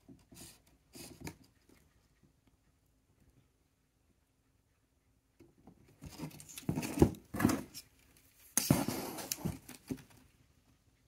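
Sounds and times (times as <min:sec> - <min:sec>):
wood and metal scraping cardboard: 0:06.0 - 0:10.0.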